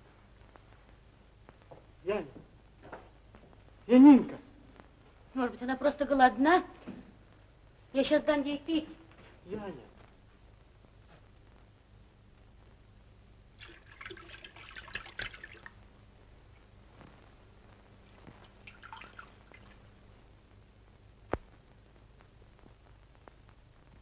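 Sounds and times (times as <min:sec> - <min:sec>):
old film soundtrack hum and hiss: 0:00.0 - 0:24.0
milk pouring from a jug: 0:13.6 - 0:15.8, 0:18.4 - 0:19.8.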